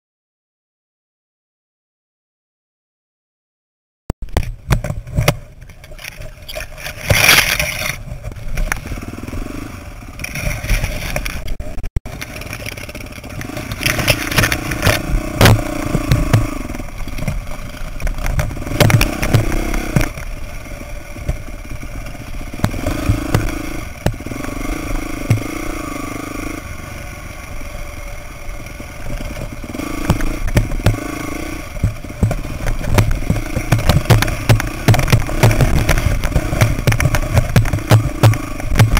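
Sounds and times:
bike clattering over rocks: 0:04.4 - 0:08.8, 0:10.2 - 0:16.5
branches scraping against bike: 0:04.4 - 0:38.9
dirt bike engine revving: 0:06.7 - 0:38.9.

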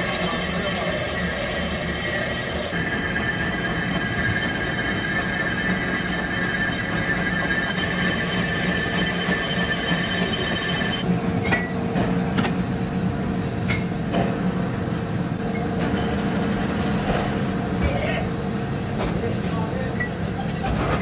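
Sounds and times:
high steady machine whine: 0:00.0 - 0:11.1
metalworking machinery humming: 0:00.0 - 0:11.7.

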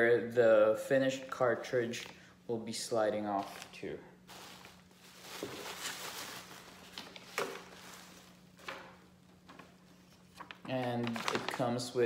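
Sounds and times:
plastic bags and bubble wrap rustling: 0:03.4 - 0:12.0.

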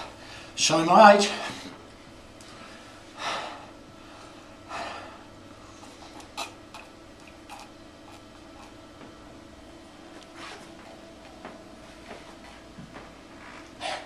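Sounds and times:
low room hum: 0:00.0 - 0:14.0
man breathing heavily: 0:02.4 - 0:06.2, 0:13.4 - 0:14.0.

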